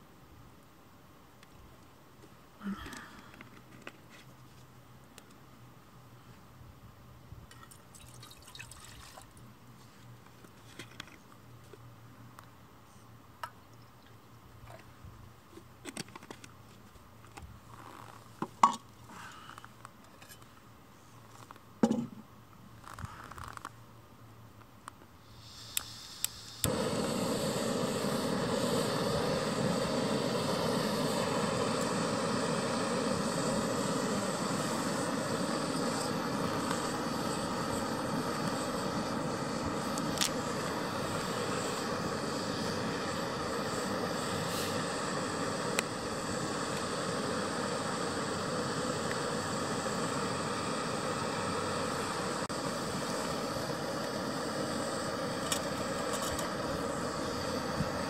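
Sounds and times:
water poured into metal pot: 7.9s - 9.3s
gas stove burner roaring: 25.4s - 58.0s.

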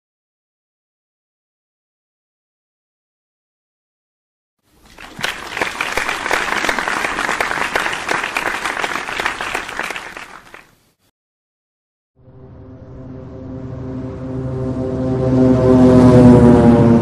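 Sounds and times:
crowd clapping: 4.8s - 10.7s.

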